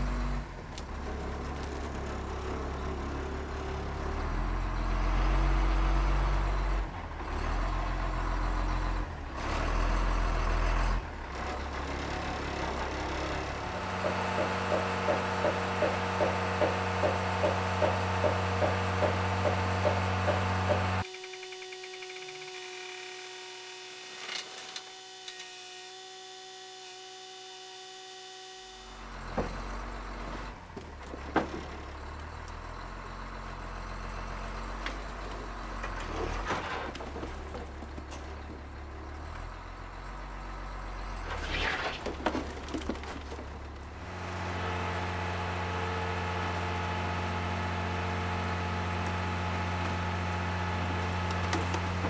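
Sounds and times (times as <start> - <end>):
truck engine revving: 0.0 - 21.1, 43.9 - 52.0
hydraulic hoist whine: 13.7 - 29.1.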